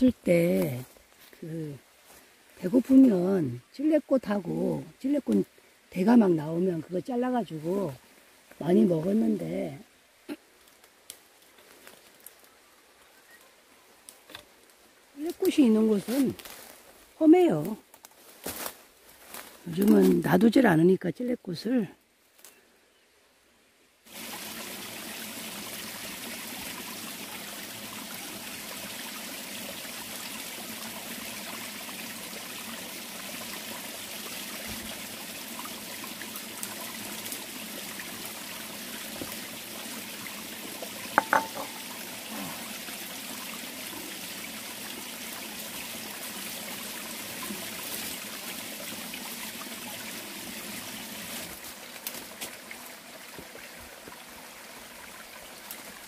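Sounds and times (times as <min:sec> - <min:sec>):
flowing stream: 0:00.0 - 0:22.2, 0:22.8 - 0:56.0.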